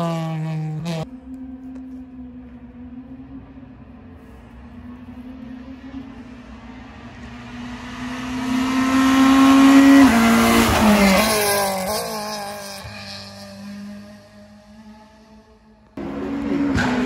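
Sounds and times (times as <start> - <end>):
rally car engine at full throttle: 0.0 - 17.0.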